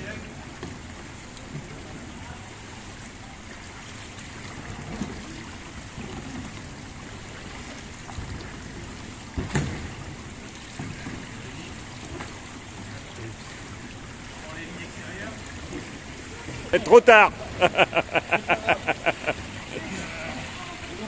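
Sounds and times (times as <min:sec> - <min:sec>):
water splashing and trickling: 0:00.0 - 0:21.0
kayak hull thump and splash: 0:04.5 - 0:14.3, 0:15.4 - 0:19.7.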